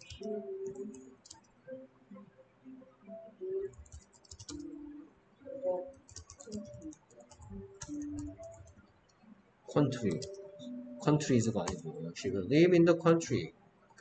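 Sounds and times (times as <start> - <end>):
computer keyboard typing: 0.0 - 1.5, 3.6 - 4.8, 5.9 - 8.8, 9.8 - 12.0
faint low tones: 0.0 - 13.5.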